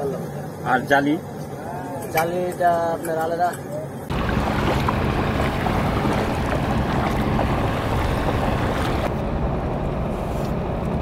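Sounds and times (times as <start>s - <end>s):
boat engine humming: 4.0s - 10.4s
wind buffeting microphone: 4.1s - 9.1s.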